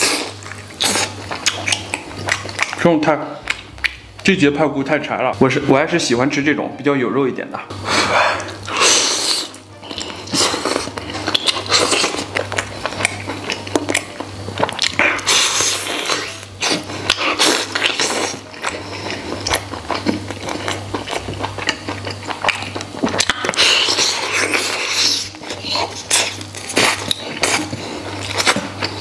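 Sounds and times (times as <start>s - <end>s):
man chewing meat: 0.0s - 4.3s, 7.7s - 29.0s
background music: 8.0s - 23.3s.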